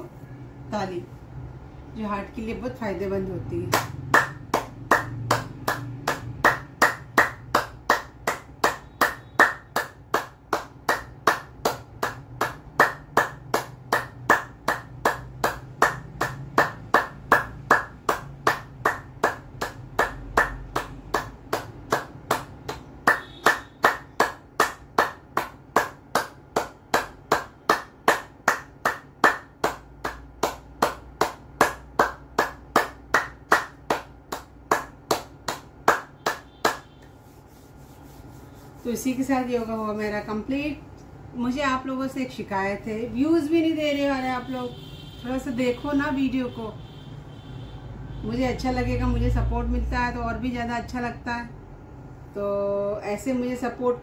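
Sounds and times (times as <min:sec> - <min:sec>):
person clapping: 0:03.7 - 0:38.8.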